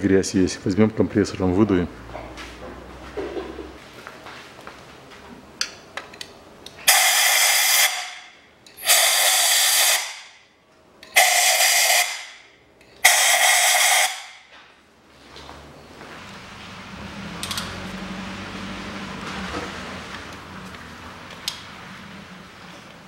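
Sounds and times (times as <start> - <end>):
compressed air blow gun hissing: 6.9 - 8.2, 8.8 - 10.2, 11.2 - 12.3.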